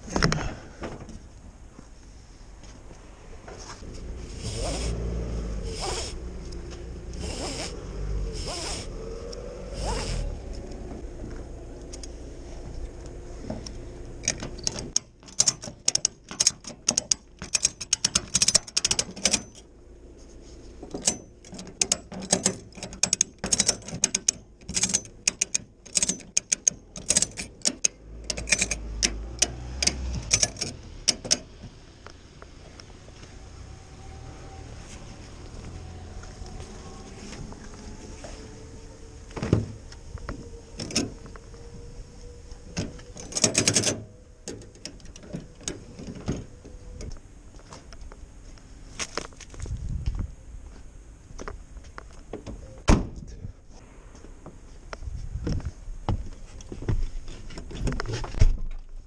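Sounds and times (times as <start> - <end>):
ratchet buckle clicking: 14.2 - 19.6, 21.0 - 31.4.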